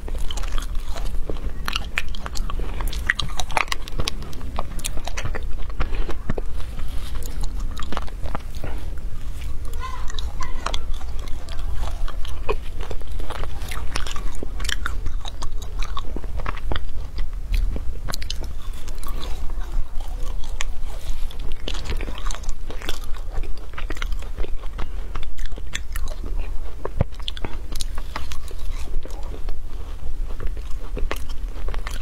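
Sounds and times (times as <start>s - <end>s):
ice being bitten and crunched: 0.0s - 32.0s.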